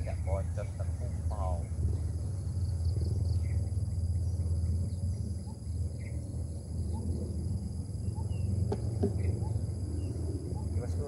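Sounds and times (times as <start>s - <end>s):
insects chirring: 0.0s - 11.0s
low steady rumble: 0.0s - 11.0s.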